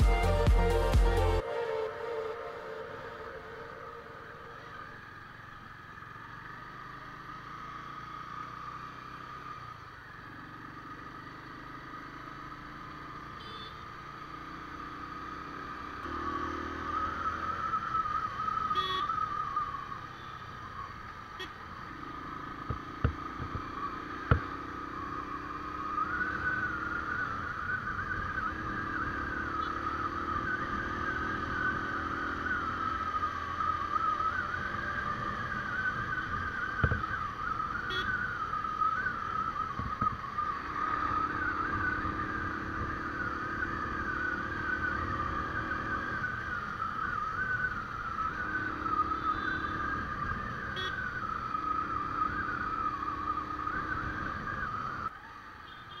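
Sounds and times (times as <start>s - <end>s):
motorbike engine and road noise: 0.0s - 56.0s
high wavering whine: 1.4s - 5.1s.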